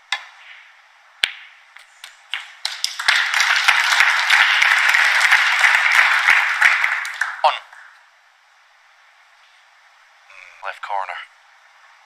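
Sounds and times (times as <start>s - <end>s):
audience applause: 2.6s - 8.0s.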